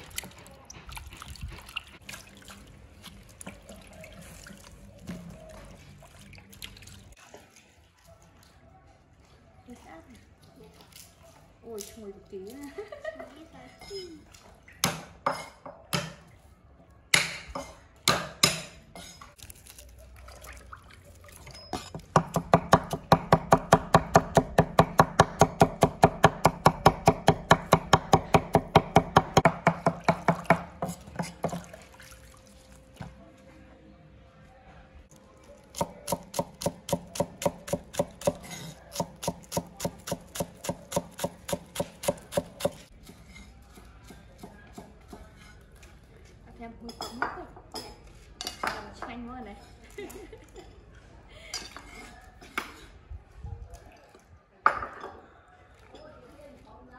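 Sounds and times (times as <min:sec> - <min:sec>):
cleaver chopping on wooden block: 0:22.1 - 0:30.7, 0:39.0 - 0:42.8.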